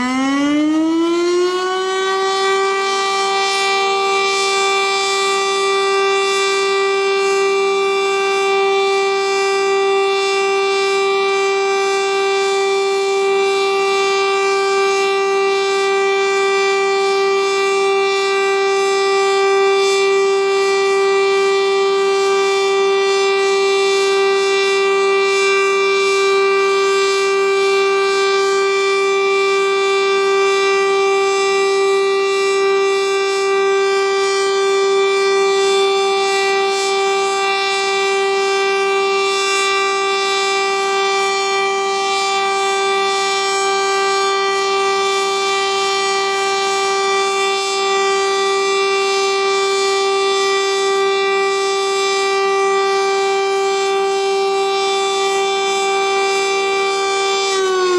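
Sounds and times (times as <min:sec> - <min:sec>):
warning siren steady tone: 0:00.0 - 0:57.9.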